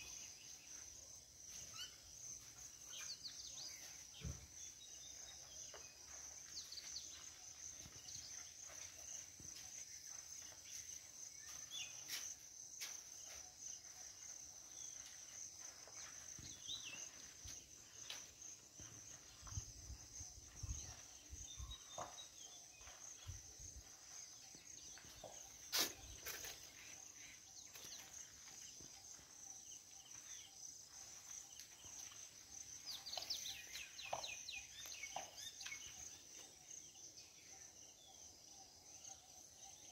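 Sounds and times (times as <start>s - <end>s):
bird chirps: 0.0s - 12.3s, 20.3s - 39.9s
insects droning: 0.0s - 39.9s.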